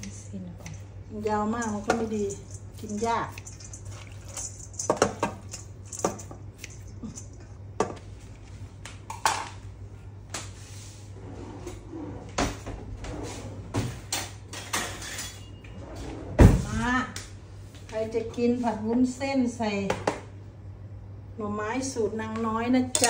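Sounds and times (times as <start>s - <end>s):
metal cookware clinking: 0.0s - 7.5s
low steady hum: 0.0s - 23.0s.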